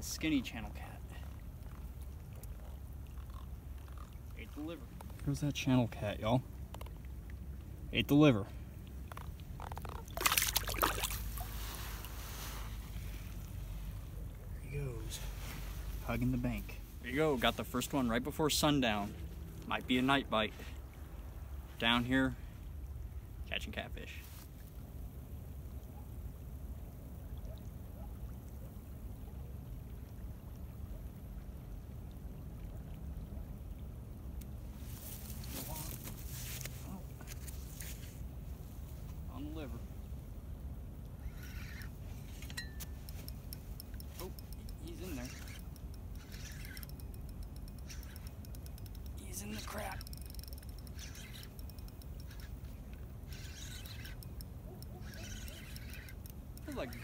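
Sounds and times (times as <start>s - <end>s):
river flowing: 0.0s - 23.5s, 28.4s - 57.0s
low steady rumble: 24.6s - 57.0s
fishing reel ticking: 41.2s - 57.0s
reel whirring: 41.2s - 57.0s.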